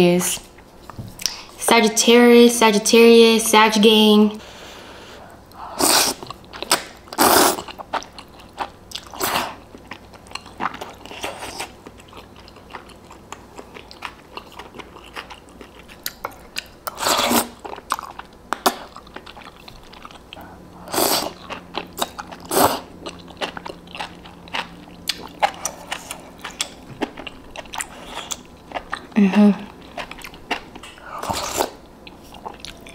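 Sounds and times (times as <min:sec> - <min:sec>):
wet chewing: 0:05.3 - 0:32.9
person slurping noodles: 0:05.7 - 0:06.3, 0:07.2 - 0:07.7, 0:16.9 - 0:17.6, 0:20.8 - 0:21.4, 0:22.5 - 0:22.9.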